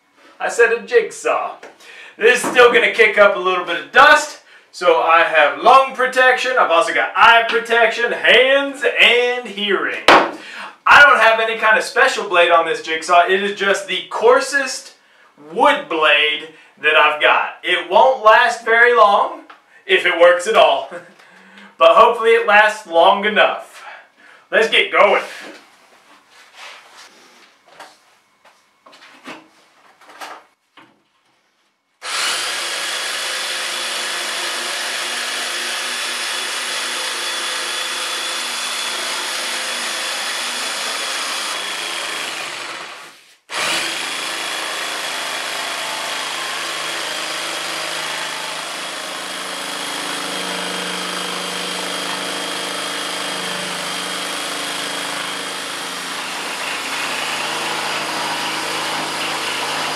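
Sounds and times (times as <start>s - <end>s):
jigsaw cutting board: 32.0s - 59.9s.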